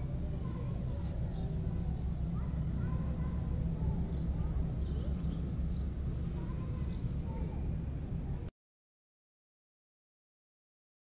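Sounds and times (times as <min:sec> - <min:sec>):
distant voices: 0:00.0 - 0:08.5
low rumble: 0:00.0 - 0:08.5
faint bird chirps: 0:00.5 - 0:07.6.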